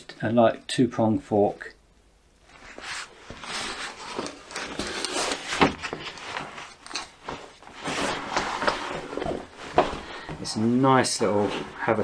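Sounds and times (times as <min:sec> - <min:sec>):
fabric bag rustling: 0:02.5 - 0:12.0.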